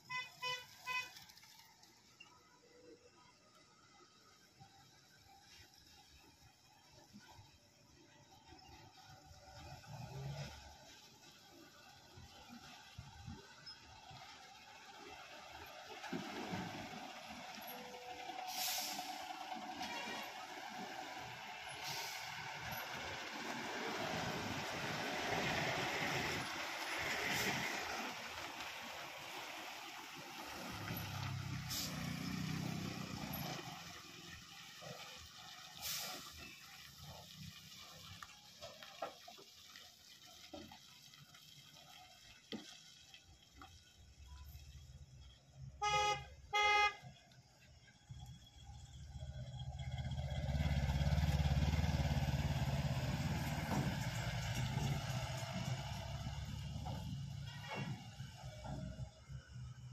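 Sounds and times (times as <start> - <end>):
tyre noise on dirt road: 0.0 - 59.9
truck diesel engine under load: 2.8 - 59.9
brief hisses: 18.5 - 19.3, 21.8 - 22.4, 31.6 - 32.3, 35.8 - 36.7.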